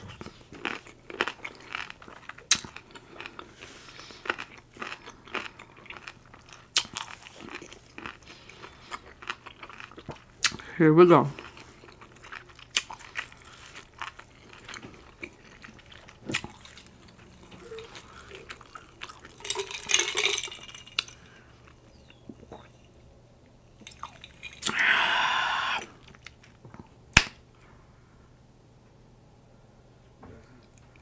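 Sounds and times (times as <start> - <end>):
wet chewing clicks: 4.2 - 10.6, 11.4 - 19.4.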